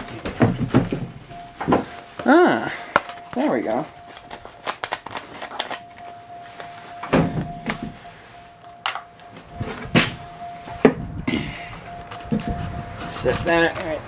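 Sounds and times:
clunks and knocks of objects handled: 0:00.0 - 0:02.3, 0:07.0 - 0:08.0
faint steady high tone: 0:01.2 - 0:13.7.

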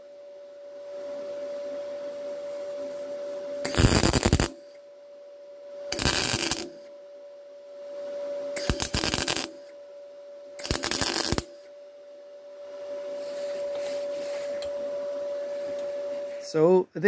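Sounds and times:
steady hum: 0:00.0 - 0:17.0
welding arc crackling: 0:03.6 - 0:04.8, 0:05.9 - 0:06.9, 0:08.6 - 0:09.7, 0:10.6 - 0:11.7
man talking: 0:16.4 - 0:17.0.

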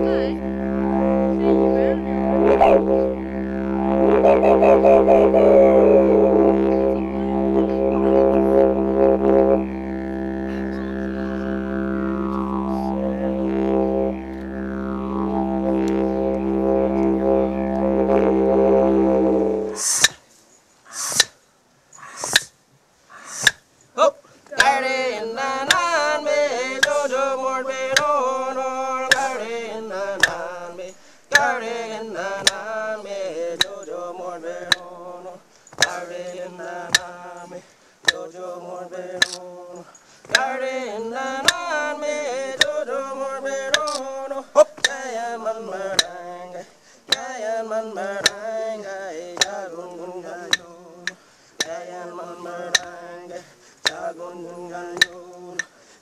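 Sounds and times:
man chanting: 0:00.0 - 0:14.1, 0:24.0 - 0:51.1
sharp knock beating time: 0:26.7 - 0:32.8, 0:33.6 - 0:34.9, 0:41.4 - 0:45.2, 0:45.8 - 0:46.3.

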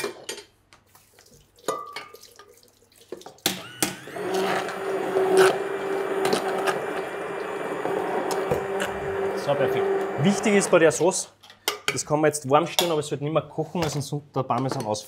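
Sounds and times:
stick blender motor hum: 0:03.6 - 0:11.0.

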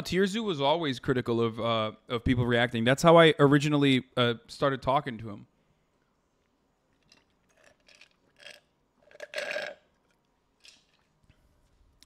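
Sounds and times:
man sipping through a straw: 0:07.0 - 0:11.2
swallowing and gulping: 0:07.0 - 0:11.2.

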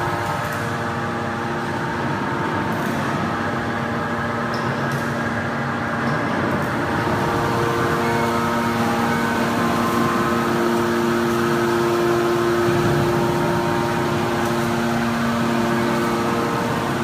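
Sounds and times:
hydraulic machine hum: 0:00.0 - 0:17.0.

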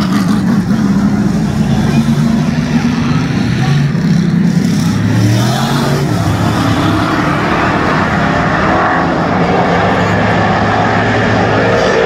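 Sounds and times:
race car engines roaring: 0:00.0 - 0:12.0.

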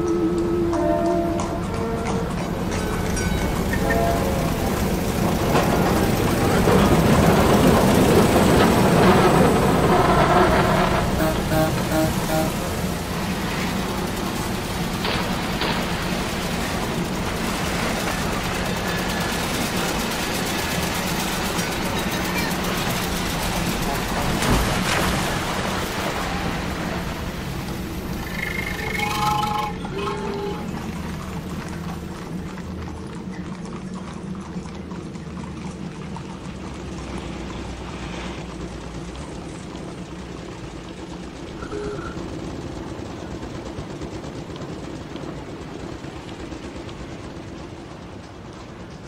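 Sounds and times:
street traffic rushing: 0:00.0 - 0:32.8, 0:36.4 - 0:43.0
steady rumbling rattling noise: 0:01.4 - 0:49.0
brief pitched tone: 0:11.2 - 0:12.6, 0:28.2 - 0:30.9, 0:41.6 - 0:42.2.

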